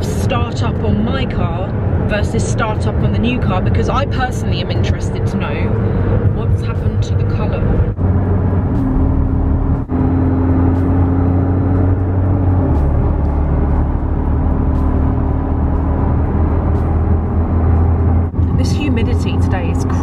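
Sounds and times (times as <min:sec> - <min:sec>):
car engine drone: 0:00.0 - 0:20.0
road noise inside car cabin: 0:00.0 - 0:20.0.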